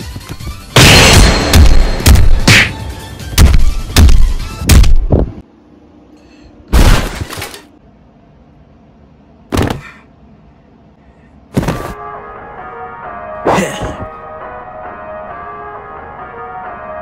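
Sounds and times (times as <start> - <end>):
heavy hit sound effects: 0.8 - 5.0.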